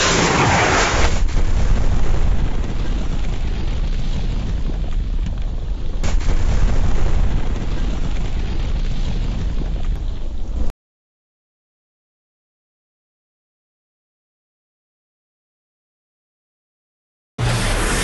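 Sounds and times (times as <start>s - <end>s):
explosion blast with low rumble: 0.0s - 10.7s.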